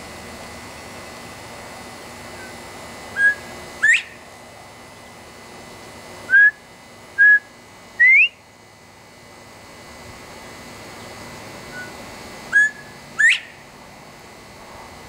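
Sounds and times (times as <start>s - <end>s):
bobwhite whistling call: 3.2s - 4.2s, 6.3s - 6.6s, 7.2s - 8.4s, 11.7s - 13.6s.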